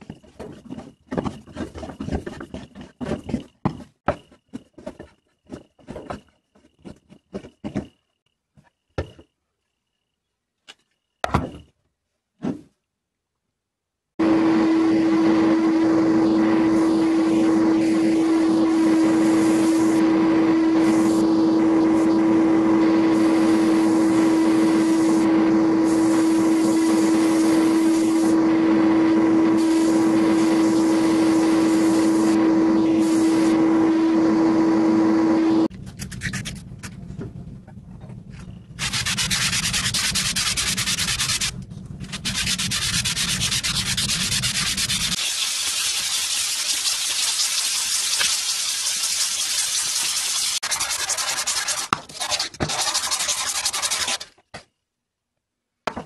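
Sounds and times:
sandblasting hiss of air and grit: 16.2s - 33.7s, 42.1s - 51.9s
constant hum: 35.6s - 38.8s
metal sanding scrape: 38.8s - 54.4s.

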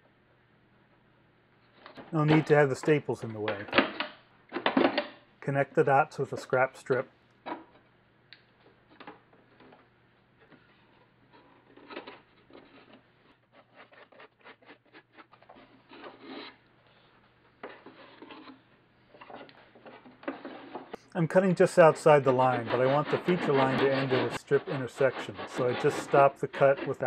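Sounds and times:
wood scraping on wood: 1.9s - 3.8s, 10.4s - 17.0s, 17.6s - 27.0s.

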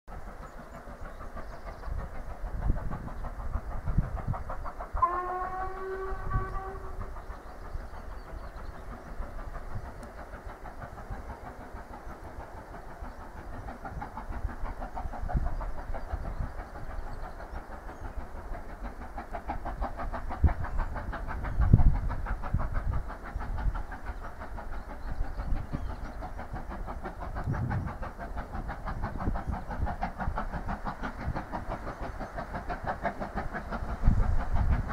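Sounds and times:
steam engine working hard: 0.1s - 34.9s
distant steam locomotive whistle: 4.9s - 7.2s
wind rumbling on microphone: 20.4s - 23.7s, 27.3s - 30.4s.

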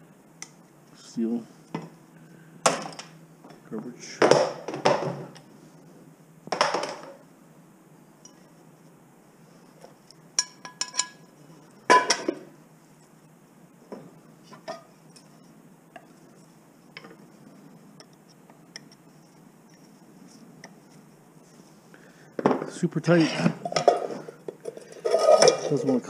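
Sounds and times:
metal scrape on workbench: 25.0s - 25.8s.

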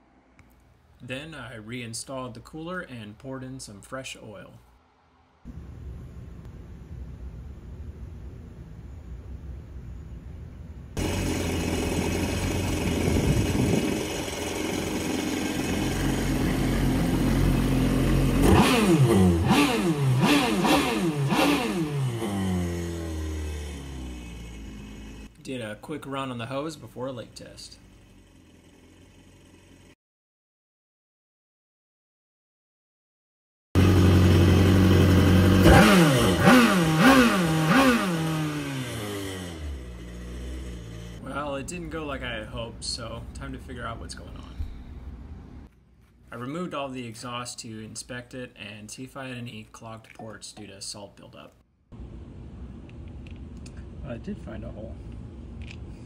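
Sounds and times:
engine idling and revving: 11.0s - 25.4s, 27.4s - 30.0s, 33.8s - 41.4s.

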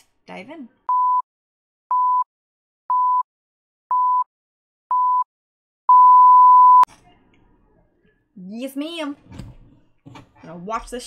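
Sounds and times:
longer louder beep: 5.9s - 6.9s.

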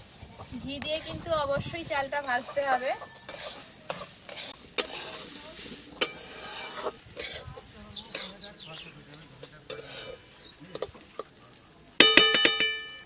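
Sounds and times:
rice sizzling in oil: 0.0s - 13.0s
metal spatula scraping pan: 1.9s - 11.5s.

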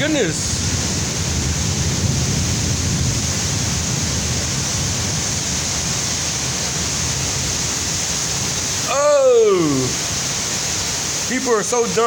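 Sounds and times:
wind gusts buffeting microphone: 0.0s - 8.9s
heavy rain pouring: 0.0s - 12.0s.

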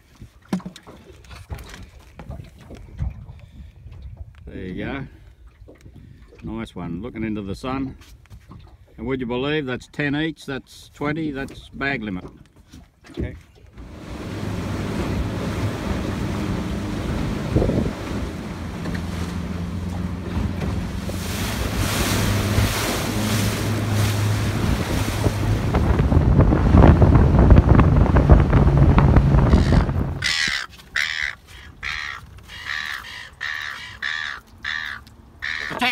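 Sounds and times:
wind on microphone: 1.4s - 6.3s, 13.8s - 30.6s
water rushing past hull: 12.2s - 35.9s
outboard motor running: 13.2s - 35.9s
birds calling: 29.4s - 35.9s.

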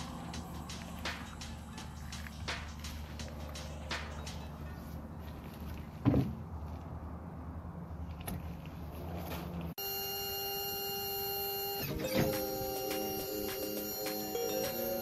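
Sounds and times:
music with long held tones: 0.0s - 5.4s, 11.6s - 15.0s
steady low hum: 0.0s - 5.9s
rubber pad thumping on tailgate: 6.0s - 6.4s.

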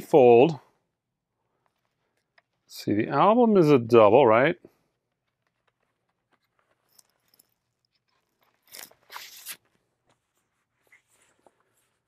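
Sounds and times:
paper sleeve scraping rustle: 8.4s - 12.0s.

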